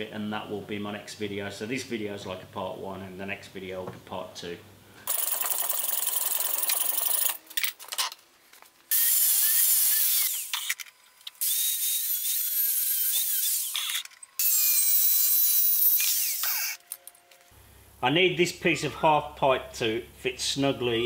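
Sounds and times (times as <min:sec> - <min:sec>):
angle grinder cutting metal: 0:08.9 - 0:10.8, 0:11.4 - 0:16.8.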